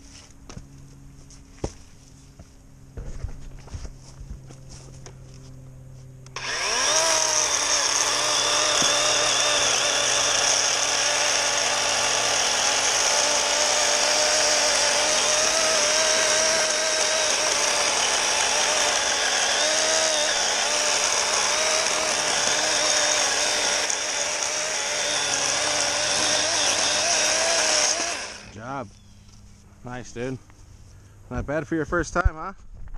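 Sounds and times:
electric chainsaw cutting log: 6.2s - 28.8s.

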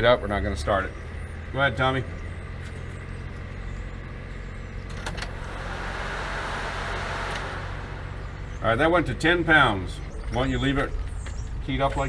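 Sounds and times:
fuel pump hissing: 5.2s - 8.6s.

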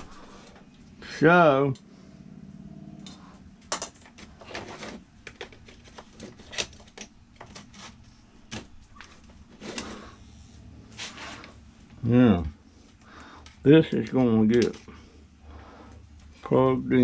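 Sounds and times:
hard plastic clicks and clatter: 3.7s - 7.8s.

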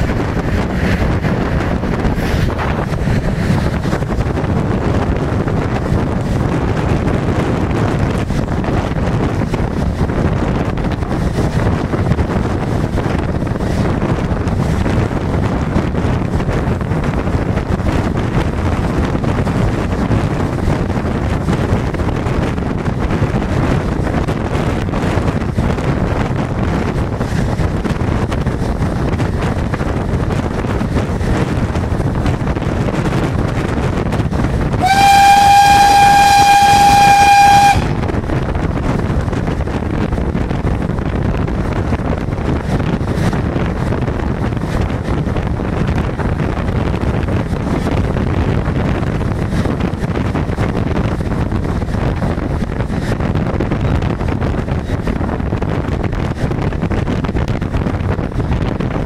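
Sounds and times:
steam locomotive running: 0.0s - 59.0s
steam whistle blast: 34.8s - 38.0s.

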